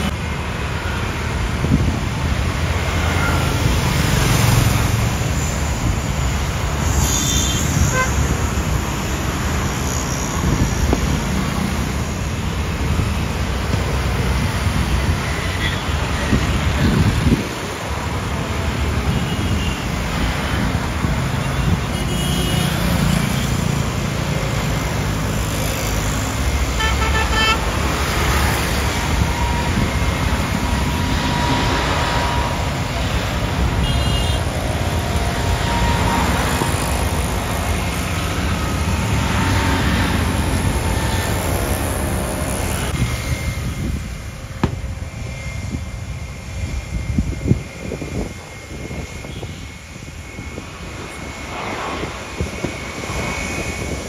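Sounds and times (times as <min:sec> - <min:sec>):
road traffic rumbling past: 0:00.0 - 0:54.0
car horn toots: 0:26.8 - 0:27.6.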